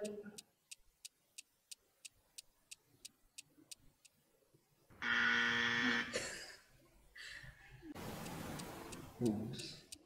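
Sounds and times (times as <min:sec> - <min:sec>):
clock-like timer ticks: 0:00.0 - 0:04.2, 0:08.0 - 0:10.0
loud buzzer tone: 0:05.0 - 0:06.2.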